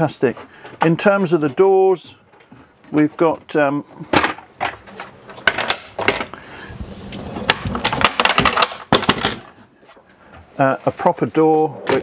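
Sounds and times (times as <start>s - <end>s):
wooden panels knocking and clicking: 4.1s - 6.4s, 7.4s - 9.6s.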